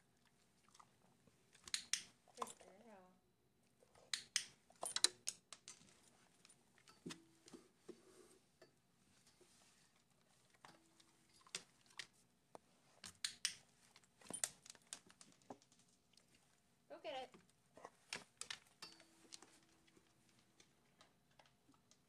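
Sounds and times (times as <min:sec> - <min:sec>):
sharp clicks and plastic taps: 0:01.6 - 0:02.1, 0:04.1 - 0:05.9, 0:12.5 - 0:13.6.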